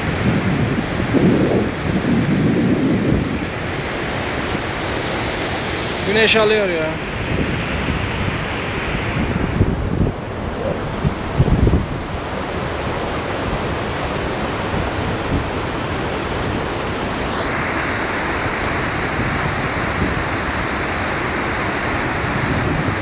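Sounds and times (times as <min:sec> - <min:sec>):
wind buffeting microphone: 0:00.0 - 0:23.0
river water rushing over rocks: 0:07.8 - 0:23.0.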